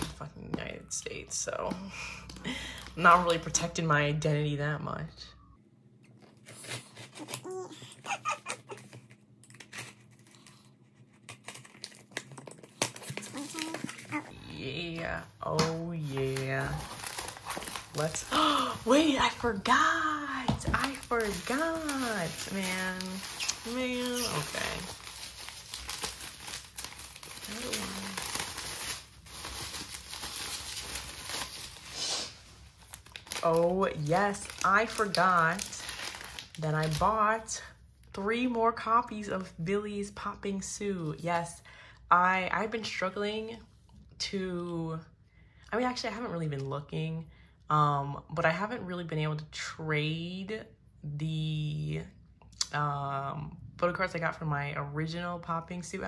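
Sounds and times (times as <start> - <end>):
plastic packaging crinkling: 6.2 - 14.4, 16.0 - 37.3.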